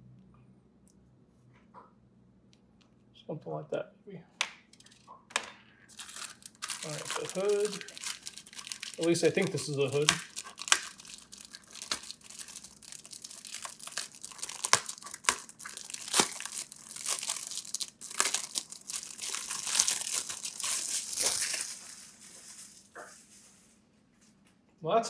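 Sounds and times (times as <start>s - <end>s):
plastic bag crinkling: 5.9s - 23.8s.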